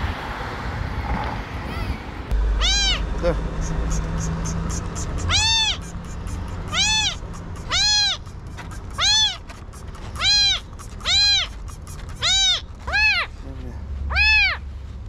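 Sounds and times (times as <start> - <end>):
kitten meowing: 1.7 - 9.5, 10.1 - 13.3, 14.1 - 14.6.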